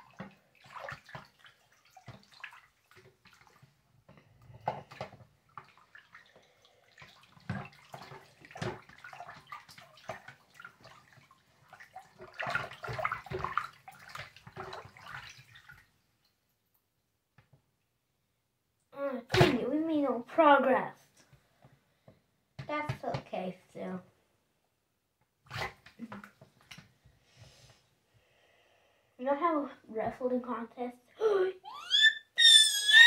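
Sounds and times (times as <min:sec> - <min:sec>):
hand splashing water in sink: 0:00.0 - 0:03.7, 0:04.8 - 0:15.9.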